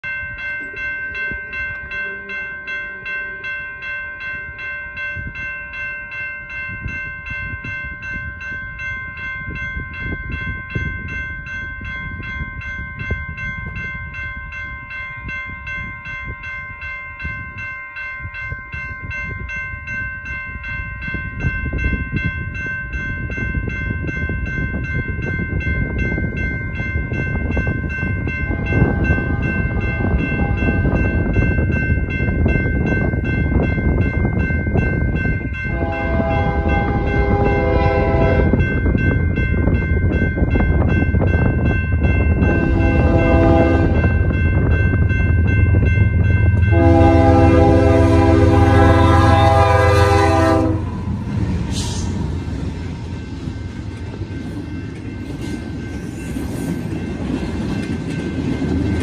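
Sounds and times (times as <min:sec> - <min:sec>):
crossing warning bell ringing: 0:00.0 - 0:59.0
wind rumble on microphone: 0:04.2 - 0:59.0
train horn: 0:28.5 - 0:30.8, 0:35.7 - 0:38.6, 0:42.4 - 0:44.2, 0:46.7 - 0:51.1.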